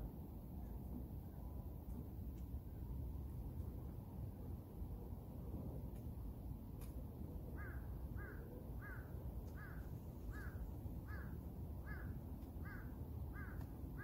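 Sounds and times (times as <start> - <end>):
crow cawing: 7.6 - 14.0.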